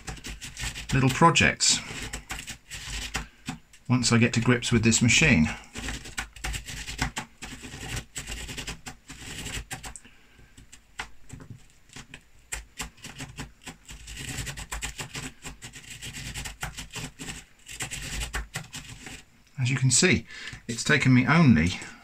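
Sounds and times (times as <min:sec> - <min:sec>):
pen scratching on paper: 0:00.0 - 0:03.4, 0:04.2 - 0:09.9, 0:11.9 - 0:19.2
gear clicking and tapping: 0:00.0 - 0:03.8, 0:05.8 - 0:19.2.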